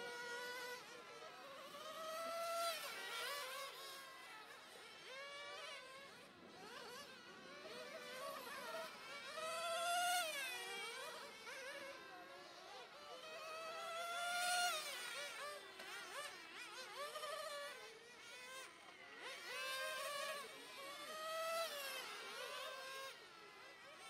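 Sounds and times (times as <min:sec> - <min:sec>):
radio-controlled car motors whining: 0:00.0 - 0:24.0.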